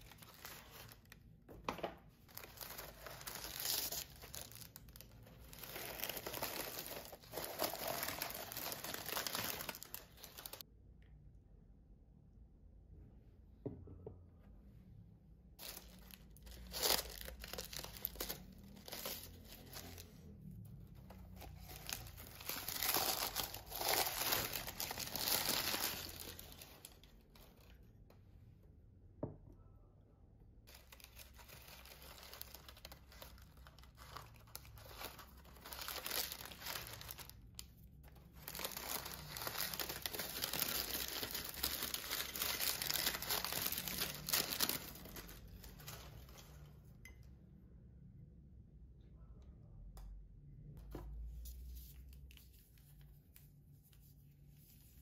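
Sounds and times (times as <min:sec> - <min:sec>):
paper crinkling and tearing: 0:00.0 - 0:01.2, 0:02.3 - 0:10.6, 0:15.6 - 0:20.2, 0:21.2 - 0:27.8, 0:30.7 - 0:46.5.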